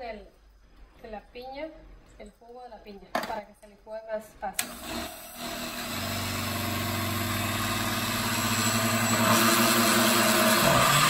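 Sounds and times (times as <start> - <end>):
blender motor running: 4.6 - 11.0.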